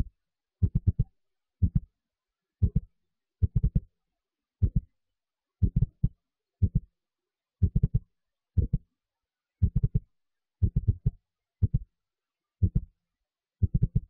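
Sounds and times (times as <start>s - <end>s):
deep thumping beat: 0.6s - 1.0s, 1.6s - 1.9s, 2.6s - 3.8s, 5.6s - 6.8s, 7.6s - 8.0s, 8.6s - 8.8s, 9.6s - 10.0s, 10.6s - 11.8s.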